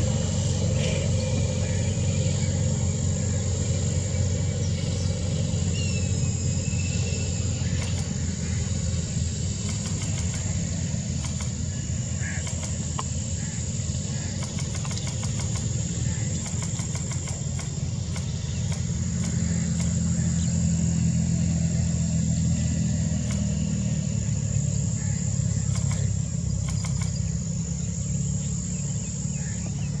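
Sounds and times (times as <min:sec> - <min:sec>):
high-pitched insect drone: 0:00.0 - 0:30.0
low engine rumble: 0:00.0 - 0:30.0
faint ticks: 0:09.6 - 0:10.5, 0:14.4 - 0:20.0, 0:25.6 - 0:27.2.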